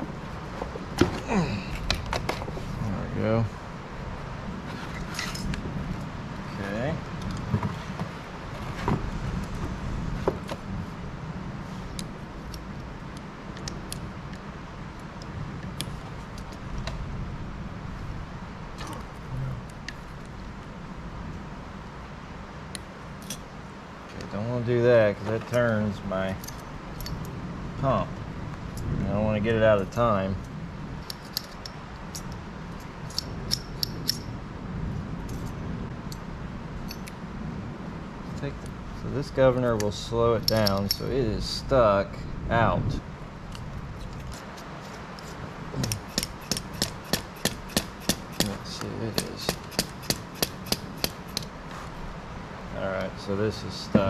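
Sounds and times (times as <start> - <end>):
steady low rumble: 0.0 - 54.0
hand tools clicking on metal: 31.0 - 34.2, 39.8 - 41.1, 43.5 - 51.5.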